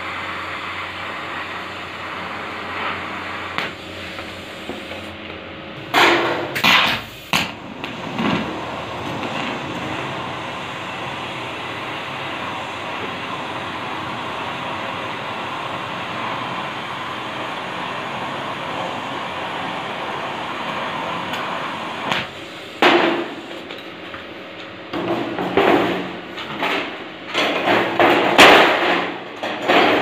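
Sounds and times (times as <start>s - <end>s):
welding arc crackling and sizzling: 0.0s - 27.1s
loud metallic knocks: 5.9s - 7.5s, 27.4s - 30.0s.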